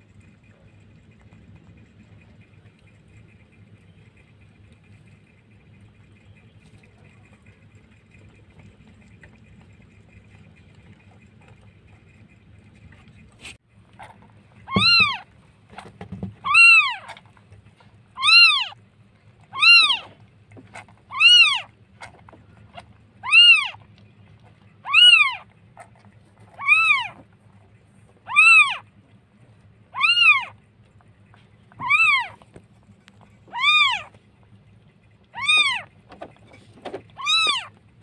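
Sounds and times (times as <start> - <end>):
kitten mewing: 14.6 - 15.3, 16.4 - 17.2, 18.2 - 18.8, 19.5 - 20.2, 21.0 - 21.7, 22.8 - 23.9, 24.8 - 25.5, 26.6 - 27.3, 28.2 - 28.9, 29.9 - 30.6, 31.7 - 32.4, 33.5 - 34.1, 35.3 - 35.9, 37.2 - 37.8.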